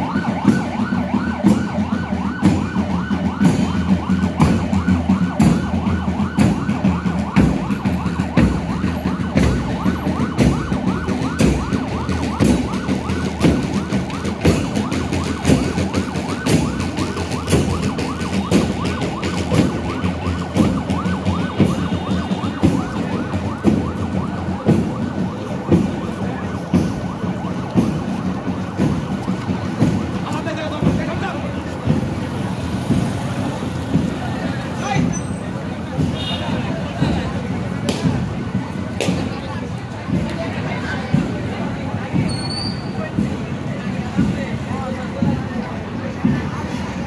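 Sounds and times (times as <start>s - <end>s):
siren warbling: 0.0s - 31.0s
marching band drums thumping: 0.0s - 47.0s.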